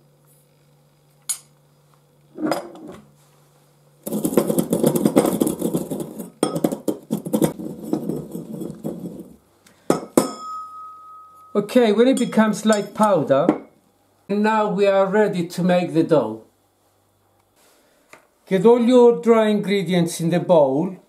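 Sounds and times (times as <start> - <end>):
pestle grinding in brass mortar: 4.0 - 10.2.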